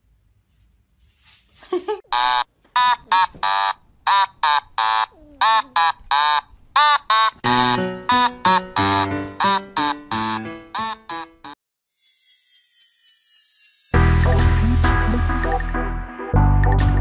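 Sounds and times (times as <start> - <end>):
high squeaky calls: 2.2 - 7.4
music: 7.4 - 11.5, 14.0 - 17.0.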